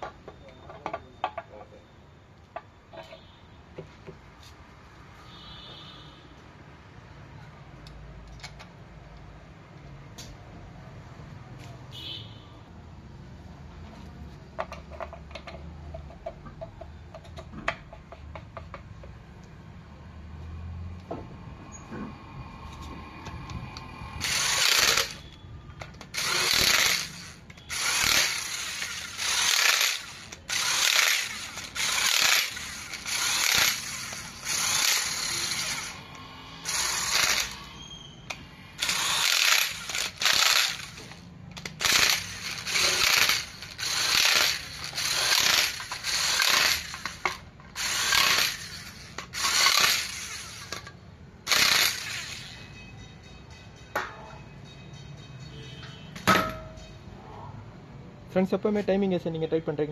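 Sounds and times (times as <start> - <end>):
power tool driving bolts: 24.1 - 52.7.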